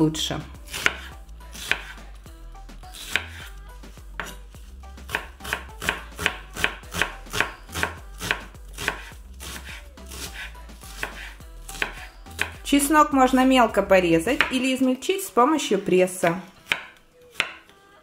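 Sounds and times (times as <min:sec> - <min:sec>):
knife chopping on wooden board: 0:00.7 - 0:02.0, 0:02.9 - 0:12.6, 0:14.3 - 0:14.7, 0:16.6 - 0:17.7.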